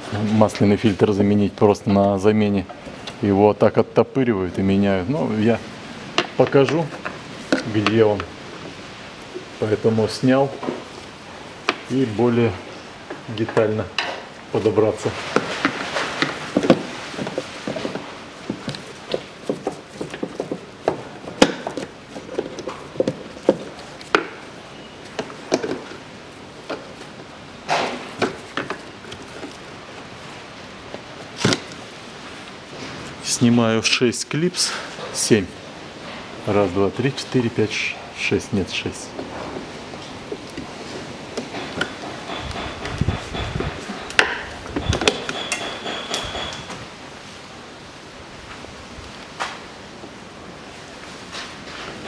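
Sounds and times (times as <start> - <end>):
thin high squeak: 45.2 - 46.8.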